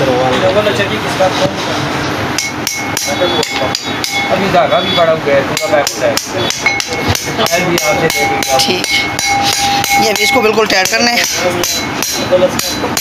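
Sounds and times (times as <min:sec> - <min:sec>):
hammer striking metal spanner: 0:02.4 - 0:04.4, 0:05.5 - 0:13.0.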